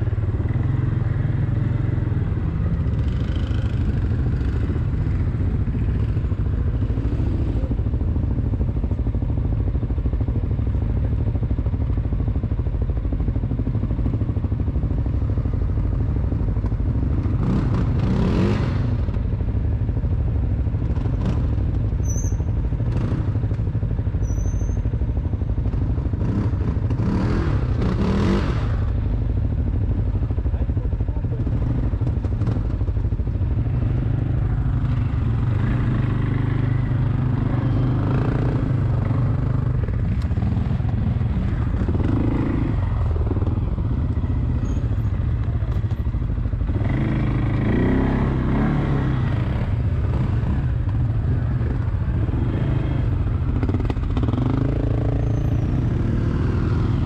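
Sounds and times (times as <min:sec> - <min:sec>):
atv engine revving: 0:00.0 - 0:07.8, 0:15.1 - 0:19.4, 0:25.6 - 0:29.2, 0:31.3 - 0:57.0.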